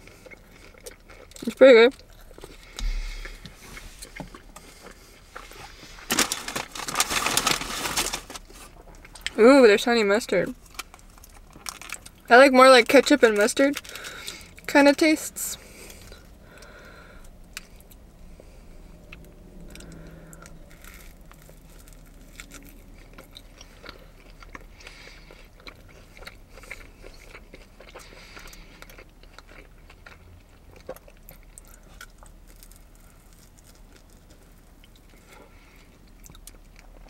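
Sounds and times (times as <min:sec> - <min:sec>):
person chewing food: 0:00.0 - 0:06.3, 0:15.6 - 0:37.0.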